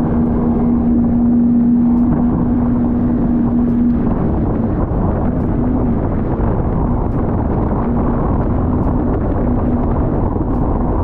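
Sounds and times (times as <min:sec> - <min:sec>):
jet ski engine running: 0:00.0 - 0:11.0
wind noise on microphone: 0:00.0 - 0:11.0.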